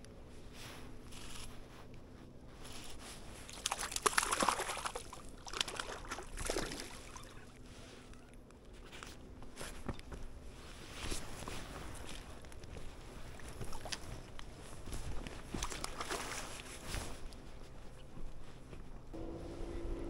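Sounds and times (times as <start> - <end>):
water sloshing and splashing: 2.6 - 10.0, 10.8 - 18.2.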